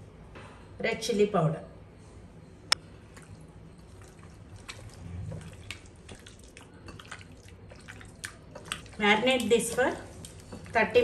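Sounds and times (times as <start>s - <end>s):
wet squelching of kneaded meat: 2.8s - 11.0s.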